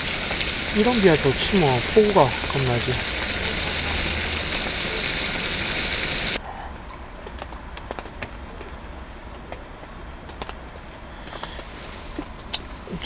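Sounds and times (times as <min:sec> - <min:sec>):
food sizzling in hot oil: 0:00.0 - 0:06.4
small crackles: 0:00.0 - 0:13.0.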